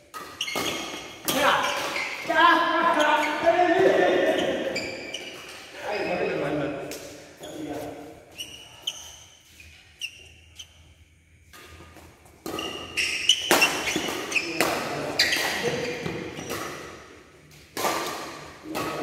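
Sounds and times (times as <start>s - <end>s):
shoes squeaking on court floor: 0.0s - 11.0s, 11.6s - 16.9s
racket striking shuttlecock: 12.4s - 15.8s, 17.7s - 19.0s.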